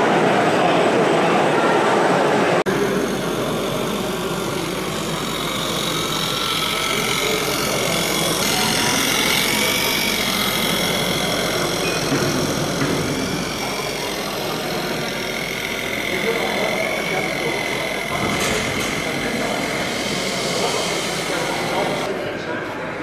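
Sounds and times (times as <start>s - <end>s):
toy tractor motor running with whine: 2.7s - 22.3s.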